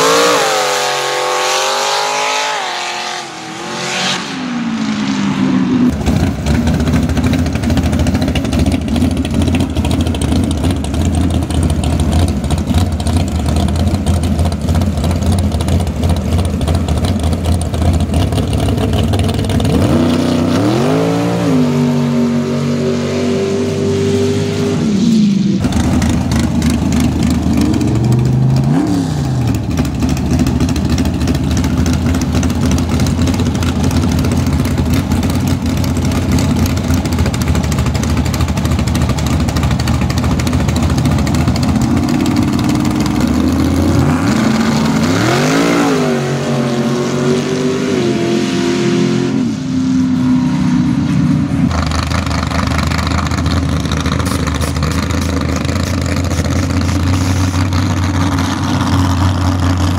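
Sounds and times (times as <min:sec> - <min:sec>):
engine revving: 0:00.0 - 0:59.9
truck engines idling roughly: 0:06.0 - 0:20.2, 0:25.6 - 0:45.3, 0:51.3 - 0:59.9.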